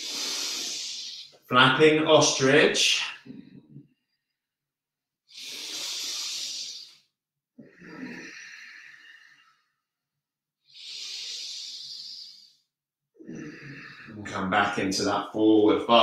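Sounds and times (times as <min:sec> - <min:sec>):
person breathing deeply: 0:00.0 - 0:01.5, 0:05.3 - 0:09.9, 0:10.6 - 0:14.2.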